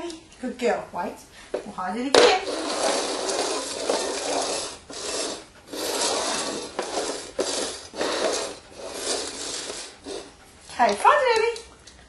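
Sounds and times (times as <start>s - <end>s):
clay pots scraping on wooden floor: 2.1s - 11.2s.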